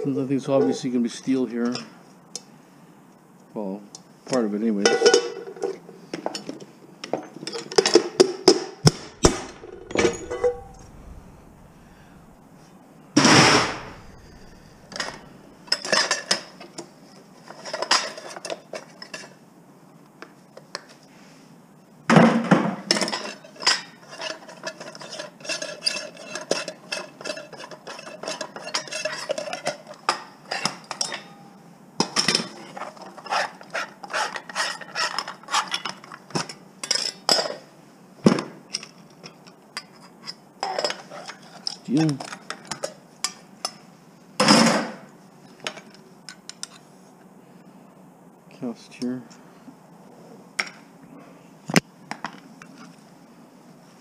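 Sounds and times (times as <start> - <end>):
scrap metal clanking: 8.9 - 12.5
metal ringing: 9.0 - 12.4.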